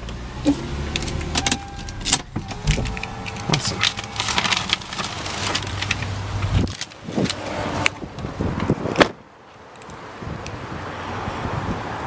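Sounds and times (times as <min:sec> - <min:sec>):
car door slamming: 0:00.5 - 0:05.7.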